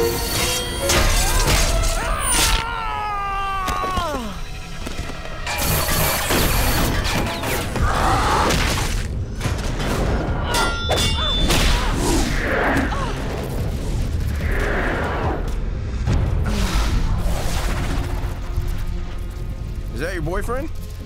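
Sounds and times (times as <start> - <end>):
shouts of effort: 1.4 - 4.4.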